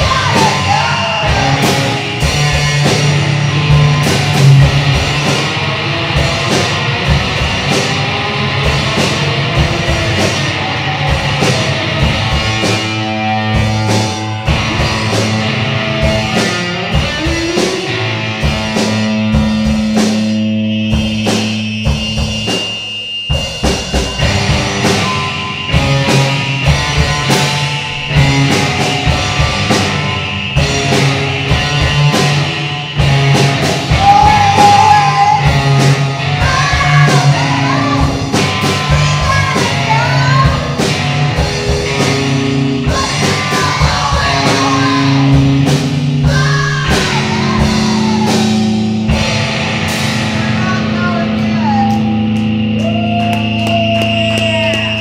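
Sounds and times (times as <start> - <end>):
shouted singing: 0.0 - 2.3, 33.9 - 40.6, 42.8 - 45.6, 46.2 - 48.6
guitar and bass: 0.0 - 55.0
rapid drumming: 0.0 - 55.0.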